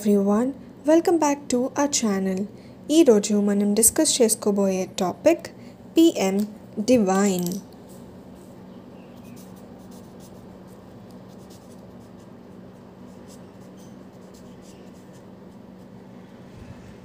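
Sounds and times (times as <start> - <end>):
steady low hum: 0.0 - 17.0
marker scratching on paper: 9.1 - 16.0.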